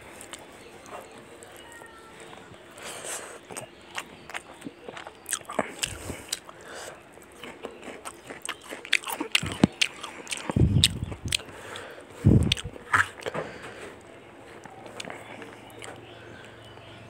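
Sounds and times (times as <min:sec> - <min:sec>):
wet chewing: 0:00.1 - 0:13.6, 0:14.6 - 0:16.6
sharp lip smacks: 0:08.9 - 0:13.3.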